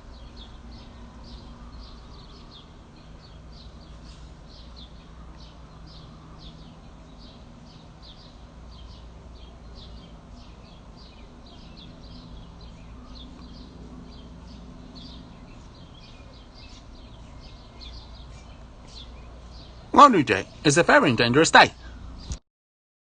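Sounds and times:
small bird chirping: 0.0s - 20.7s
steady low hum: 0.0s - 22.4s.

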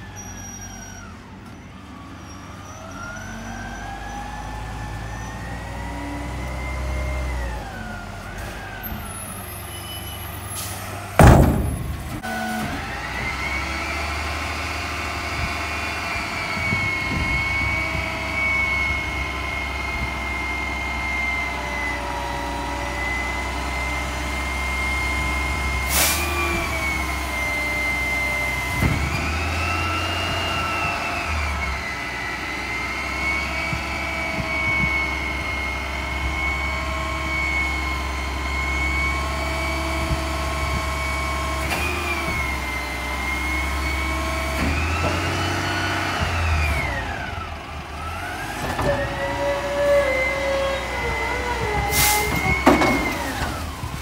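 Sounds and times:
diesel engine running: 4.3s - 54.0s
sharp knocks: 11.2s - 12.2s.

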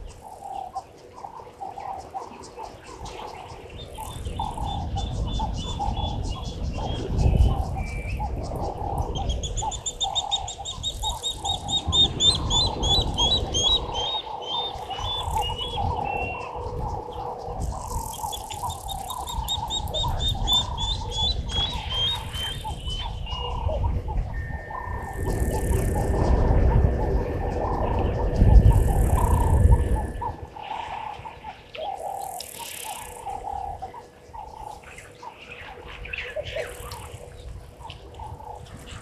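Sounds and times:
lower wavering bird calls: 0.0s - 39.0s
steady low rumble: 10.6s - 32.2s.

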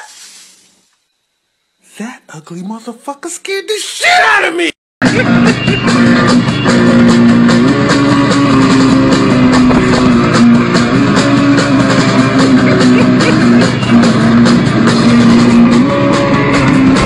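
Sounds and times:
drum kit beat: 5.0s - 17.0s
electric guitar low notes: 5.0s - 17.0s.

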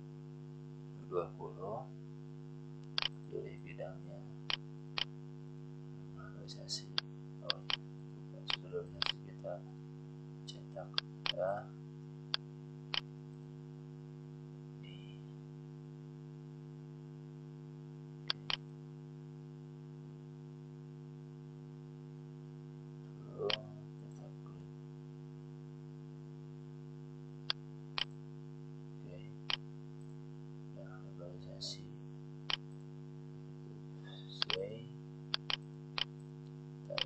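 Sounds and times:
electrical hum: 0.0s - 37.0s
computer mouse clicks: 35.4s - 36.1s.

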